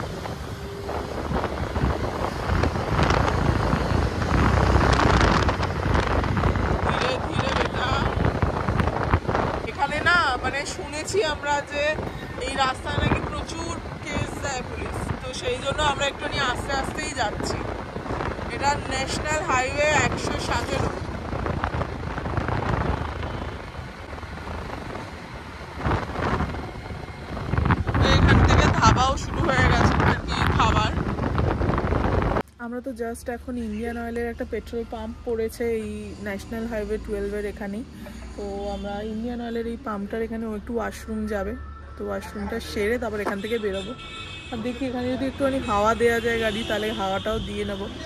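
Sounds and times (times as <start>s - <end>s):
wind buffeting microphone: 0.0s - 32.4s
road and engine noise: 0.0s - 48.0s.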